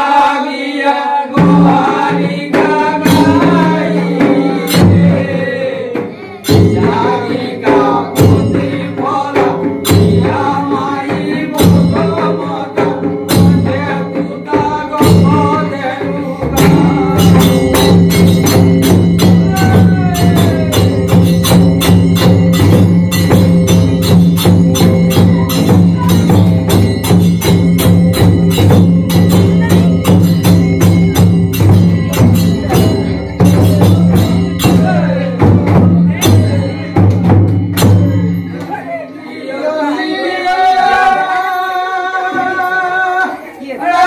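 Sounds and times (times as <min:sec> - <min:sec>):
man singing: 0:00.0 - 0:21.5, 0:32.0 - 0:37.3, 0:38.0 - 0:44.0
fast dense drumming: 0:01.4 - 0:38.4.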